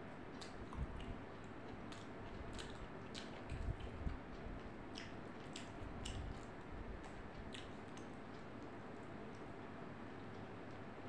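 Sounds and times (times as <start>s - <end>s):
person chewing: 0.3s - 8.5s
wet mouth clicks: 1.9s - 8.1s.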